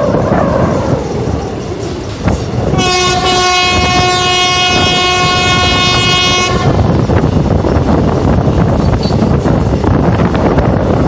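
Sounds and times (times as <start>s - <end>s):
train rumble: 0.0s - 11.0s
train wheel clatter: 0.0s - 11.0s
locomotive horn blast: 2.7s - 6.9s.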